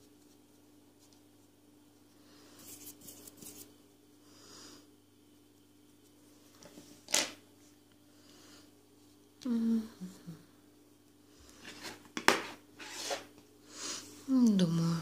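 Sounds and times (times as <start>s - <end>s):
faint steady hum: 0.0s - 15.0s
brush scratching on yarn: 2.6s - 3.8s.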